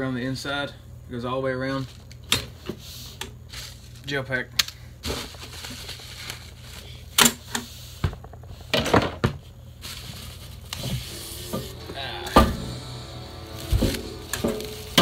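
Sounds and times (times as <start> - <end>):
bubble wrap rustling and crinkling: 5.0 - 7.1, 9.7 - 10.8.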